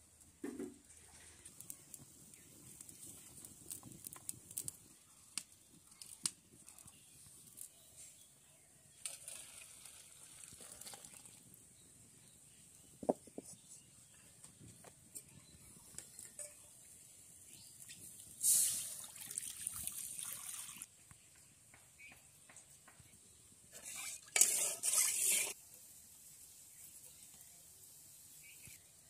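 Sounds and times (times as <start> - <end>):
wood fire hissing: 1.0 - 8.3, 17.1 - 19.1, 24.4 - 29.0.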